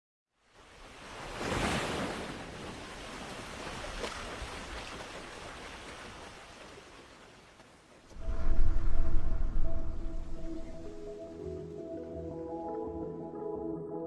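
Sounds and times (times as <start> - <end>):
ocean wave washing in: 8.1 - 11.6.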